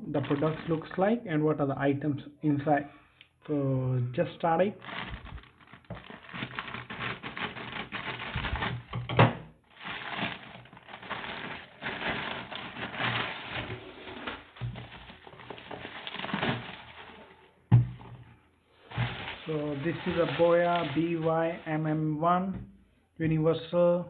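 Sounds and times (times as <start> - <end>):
plastic mailer crinkling: 0.0 - 1.0, 4.6 - 9.1, 9.7 - 17.6, 18.8 - 21.6
box being handled: 4.8 - 8.9, 9.8 - 21.2
sharp plastic crack: 4.8 - 17.2.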